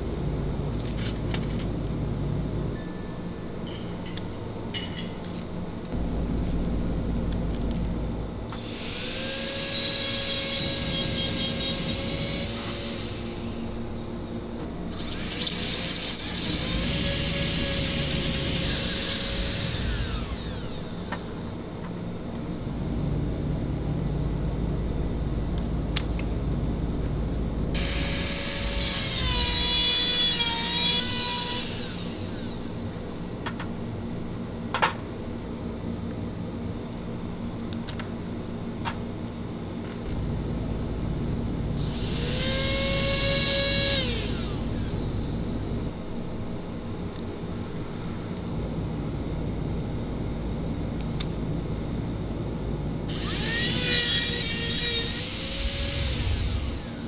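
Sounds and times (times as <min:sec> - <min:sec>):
steady low hum: 0:00.0 - 0:57.0
rotary tool whine: 0:08.5 - 0:22.6, 0:27.7 - 0:33.7, 0:41.8 - 0:46.0, 0:53.1 - 0:57.0.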